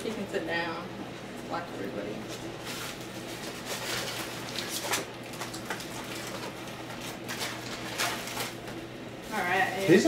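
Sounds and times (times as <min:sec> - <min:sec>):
paper and plastic crinkling: 0:02.3 - 0:10.0.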